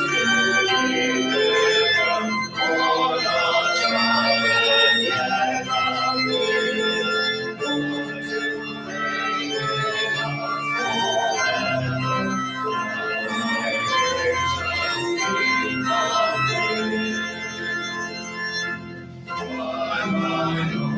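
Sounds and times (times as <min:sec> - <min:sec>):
church organ chords: 0:00.0 - 0:20.9.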